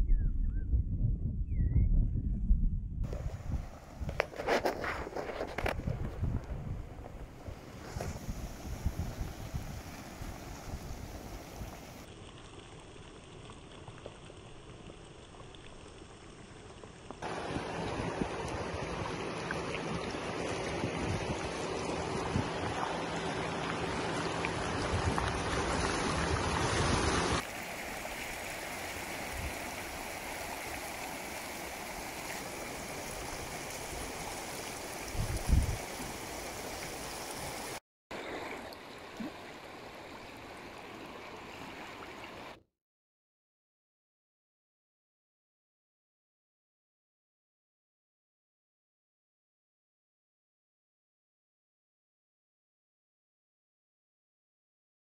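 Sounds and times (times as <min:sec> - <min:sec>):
floodwater rushing: 0:03.1 - 0:14.5, 0:17.2 - 0:42.6.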